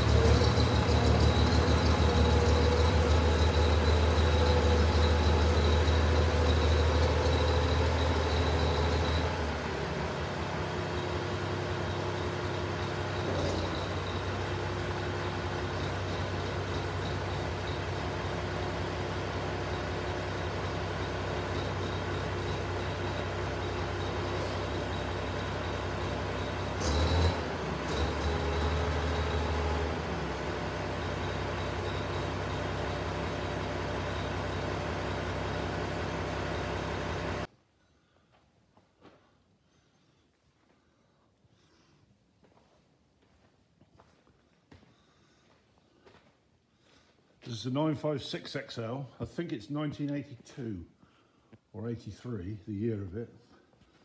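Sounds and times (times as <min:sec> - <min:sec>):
tractor diesel engine running: 0:00.0 - 0:37.5.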